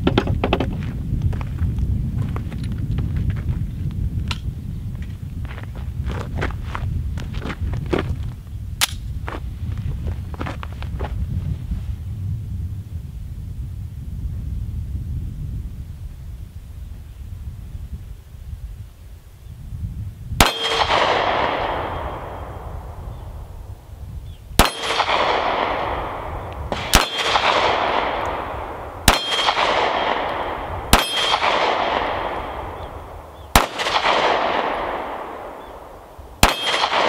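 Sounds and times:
pistol shots with echo: 0:20.4 - 0:23.0, 0:24.6 - 0:37.0.

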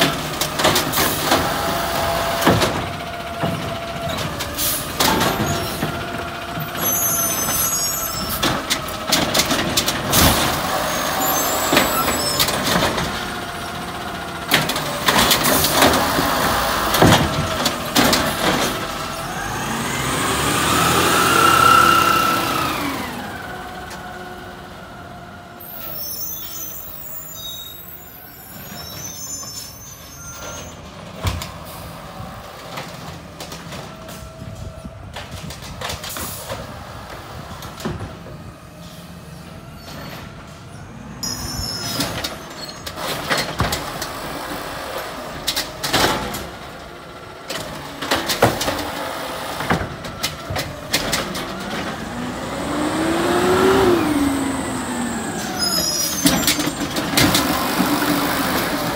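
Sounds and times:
garbage truck running: 0:00.0 - 0:58.9
air brakes squealing and hissing: 0:04.1 - 0:06.0, 0:06.6 - 0:08.9, 0:10.1 - 0:13.0, 0:25.6 - 0:32.4, 0:36.0 - 0:37.5, 0:38.4 - 0:43.5, 0:52.7 - 0:57.6.

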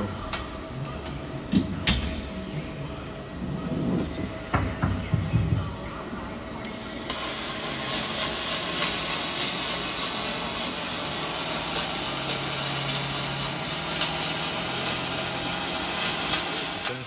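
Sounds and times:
welding arc crackling: 0:06.7 - 0:17.0.

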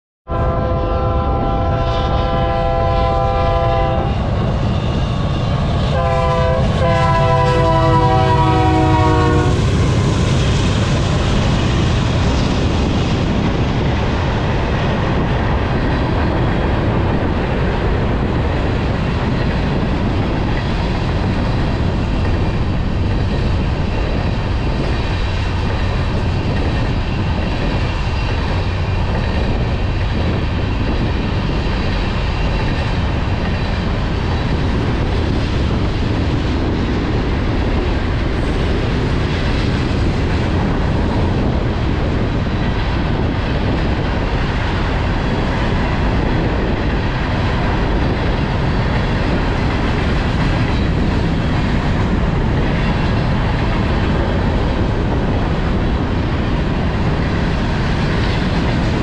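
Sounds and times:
locomotive air horn blasts: 0:00.3 - 0:04.2, 0:05.9 - 0:09.6.

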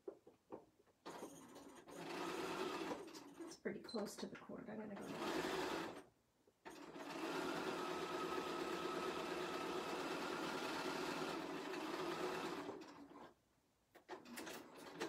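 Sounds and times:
sewing machine running: 0:01.1 - 0:03.5, 0:05.0 - 0:06.0, 0:06.7 - 0:13.3, 0:14.1 - 0:15.0.

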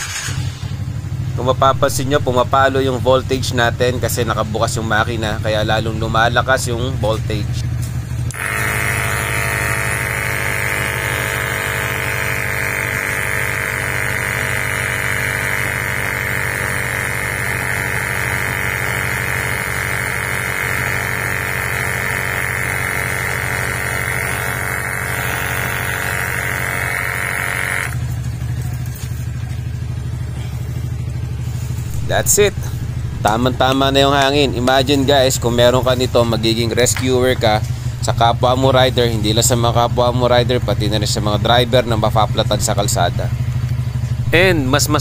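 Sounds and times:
scooter engine idling: 0:00.0 - 0:45.0
portable air compressor running: 0:07.7 - 0:36.7.

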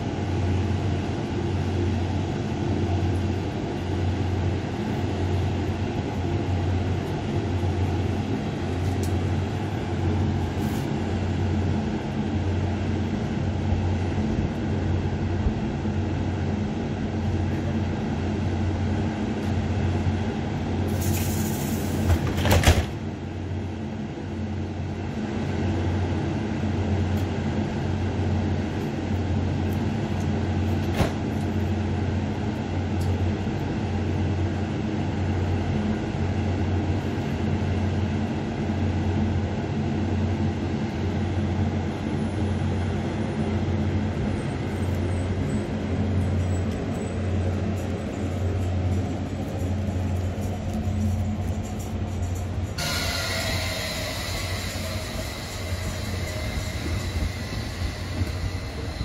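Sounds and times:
train low hum: 0:00.0 - 0:59.0
brief loud noise: 0:52.8 - 0:59.0.

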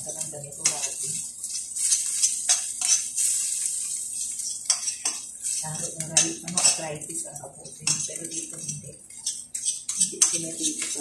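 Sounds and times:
food sizzling: 0:00.0 - 0:11.0
metal spoon scraping a pan: 0:00.0 - 0:11.0
spoon clinking against pan: 0:07.8 - 0:11.0.

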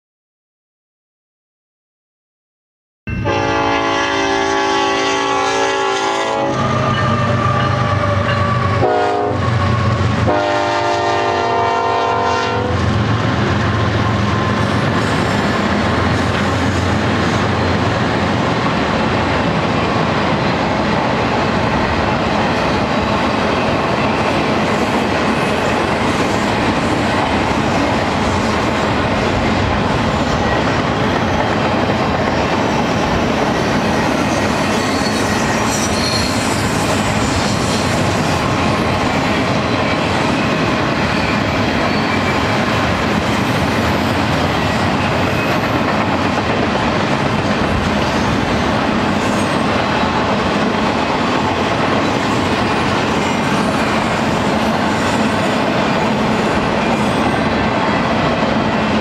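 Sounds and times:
locomotive horn blasts: 0:03.1 - 0:12.8
train wheels clattering on rails: 0:12.8 - 0:59.0.

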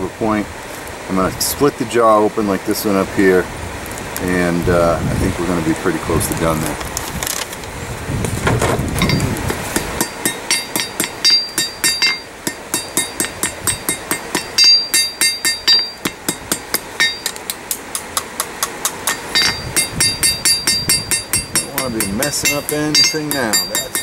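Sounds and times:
hammer striking metal on anvil: 0:09.0 - 0:24.0.

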